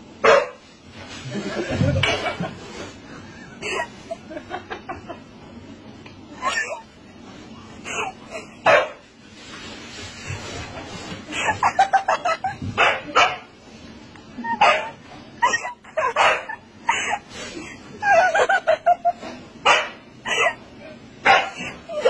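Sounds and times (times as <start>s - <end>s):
dog barking: 0.2s - 0.6s, 8.6s - 9.0s, 12.8s - 13.5s, 14.6s - 15.0s, 16.2s - 16.6s, 19.6s - 20.0s, 21.2s - 21.6s.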